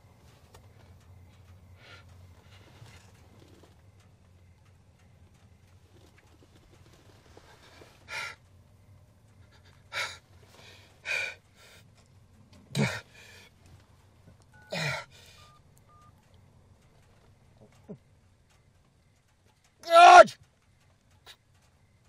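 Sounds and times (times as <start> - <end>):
man groaning: 12.7 - 13.1, 14.7 - 15.1, 19.8 - 20.3
man gasping for breath: 12.7 - 13.5, 14.7 - 15.5
phone keypad beeps: 14.5 - 16.2.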